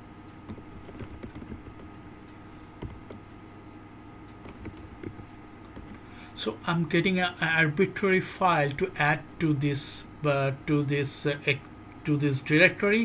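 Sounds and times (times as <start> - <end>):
faint hum: 0.0 - 13.0
keyboard typing: 0.5 - 2.2, 2.8 - 3.2, 4.4 - 6.0.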